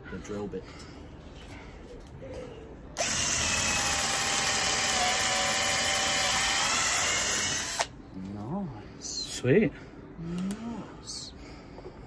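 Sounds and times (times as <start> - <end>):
cordless drills whining: 3.0 - 7.9.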